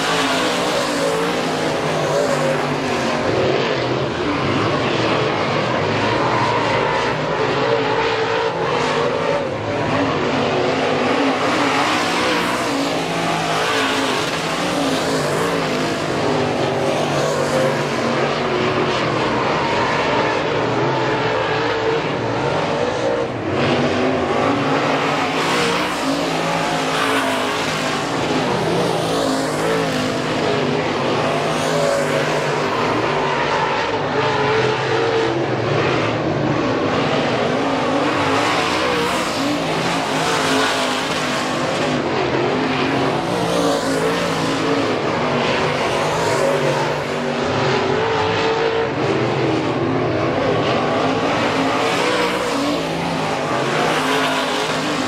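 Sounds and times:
race car engines running: 0:00.0 - 0:55.0.

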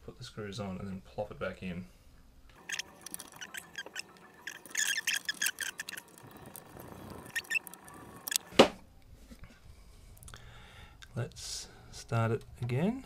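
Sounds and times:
plastic parts clicking and rattling: 0:02.6 - 0:08.5.

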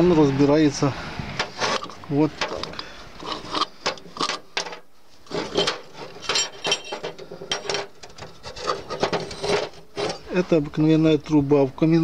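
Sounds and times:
metal parts clinking: 0:01.4 - 0:10.3
metal screw scraping: 0:01.4 - 0:10.4.

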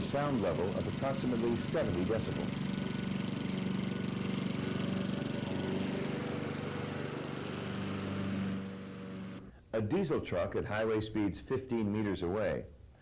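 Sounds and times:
lawn mower engine running: 0:00.0 - 0:09.5.

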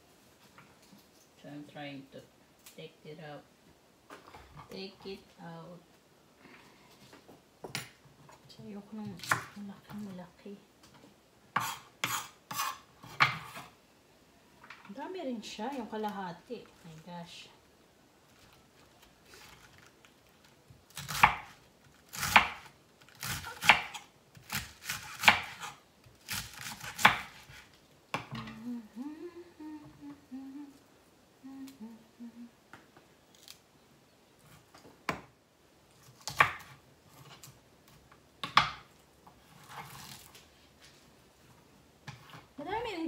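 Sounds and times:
knife chopping cabbage on board: 0:22.1 - 0:27.6
woman humming: 0:28.3 - 0:32.7.

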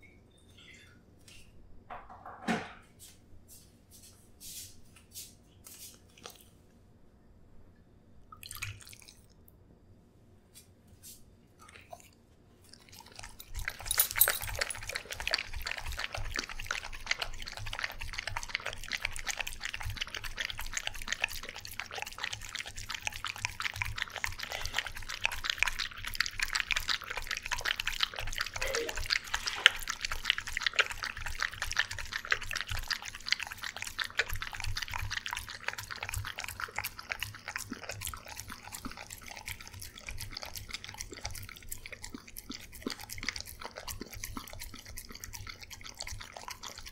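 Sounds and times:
dog lapping and chewing food: 0:05.7 - 0:06.8, 0:08.4 - 0:09.5, 0:11.6 - 0:46.9.

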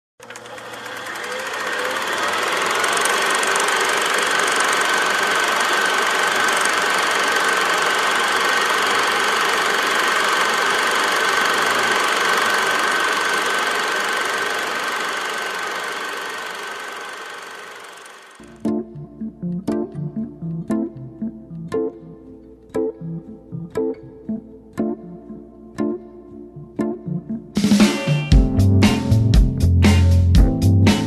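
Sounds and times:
film projector running: 0:00.2 - 0:18.6.

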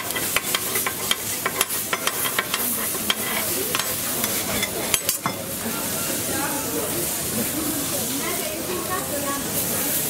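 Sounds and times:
metal spatula scraping: 0:00.0 - 0:05.4
burgers sizzling on a griddle: 0:00.0 - 0:10.0.

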